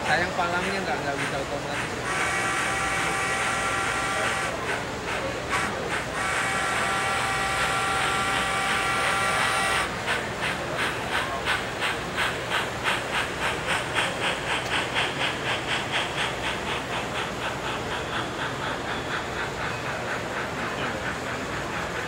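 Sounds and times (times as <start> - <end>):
rhythmic steam chuffing: 0.0 - 22.0
steam whistle: 2.1 - 4.6, 5.5 - 10.0.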